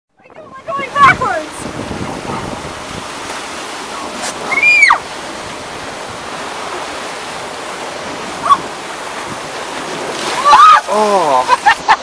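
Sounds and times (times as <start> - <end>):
whitewater rushing: 0.4 - 12.0
person squealing: 10.4 - 11.6.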